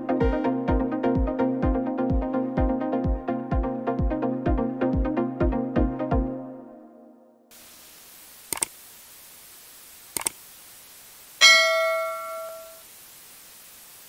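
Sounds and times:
steady hiss: 7.5 - 14.0
quick double clicks: 8.5 - 8.7, 10.2 - 10.4
bell ding: 11.4 - 12.8.

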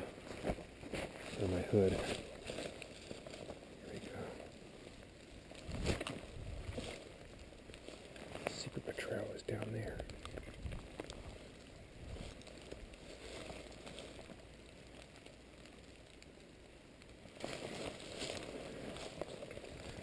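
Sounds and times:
footsteps on dry leaves: 0.0 - 4.8, 5.5 - 8.8, 10.1 - 14.5, 17.4 - 20.0
faint rustling: 0.0 - 16.4, 17.2 - 20.0.

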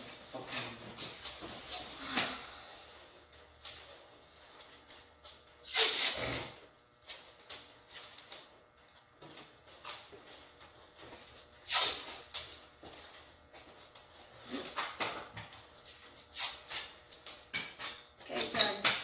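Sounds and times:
tape pulled off a roll: 5.6 - 8.4, 11.6 - 12.6, 16.3 - 17.0.

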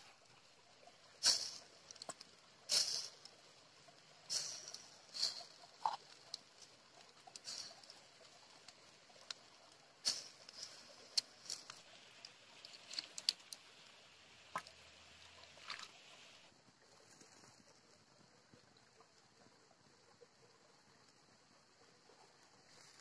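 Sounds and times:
light fire hiss: 0.0 - 16.5
fire crackling and popping: 1.2 - 3.3, 4.2 - 13.7.

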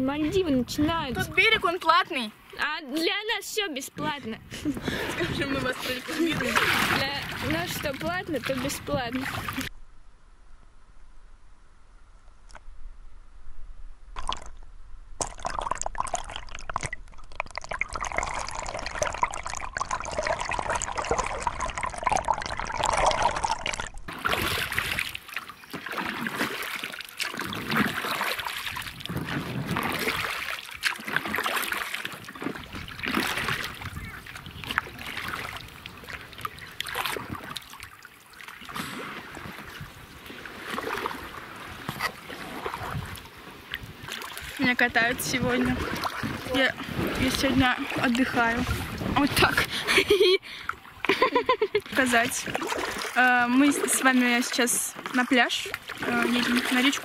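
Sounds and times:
paddle splashing in water: 4.0 - 9.7, 15.2 - 57.0
muffled underwater bubbling: 15.2 - 25.1.

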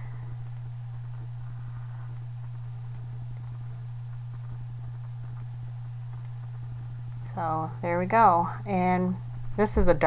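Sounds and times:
steady low hum: 0.0 - 10.0
computer mouse clicks: 0.4 - 0.7, 6.1 - 6.4.

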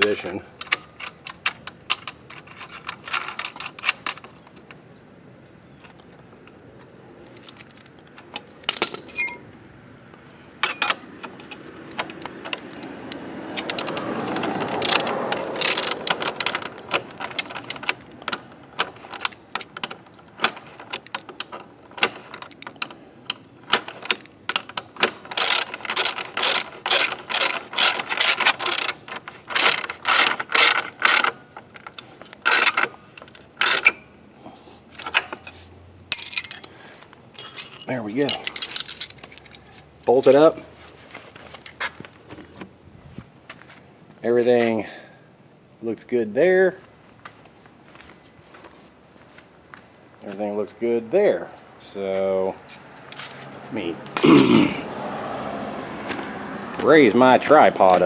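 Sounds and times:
ratchet wrench clicking: 14.8 - 16.1, 25.3 - 31.3.

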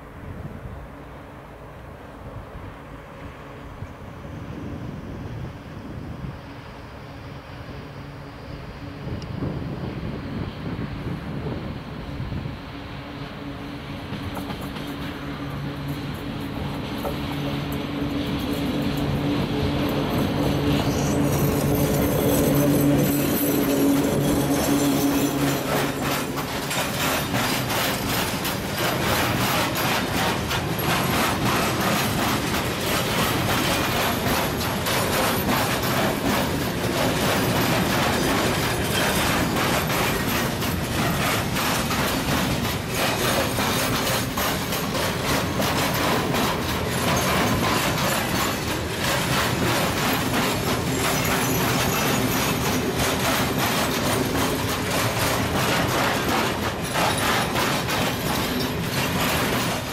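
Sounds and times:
electric locomotive hum: 0.0 - 59.9
train rumble: 0.0 - 59.9
wheels clattering over rails: 13.9 - 59.9.

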